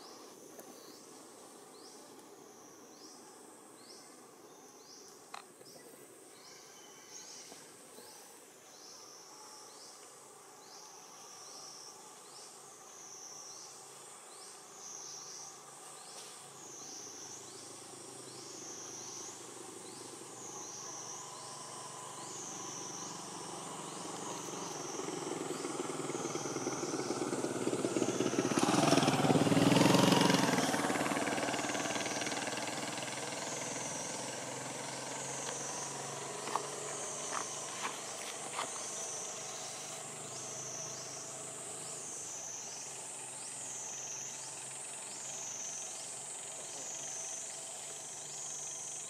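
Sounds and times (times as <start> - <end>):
high-pitched insect call: 0.0 - 49.0
motor vehicle passing: 16.6 - 49.0.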